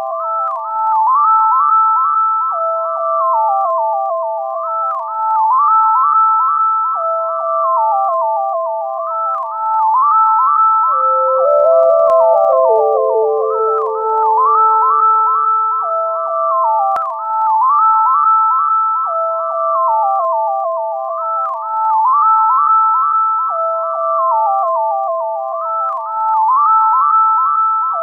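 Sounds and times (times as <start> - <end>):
ambient synth music: 10.0 - 17.8.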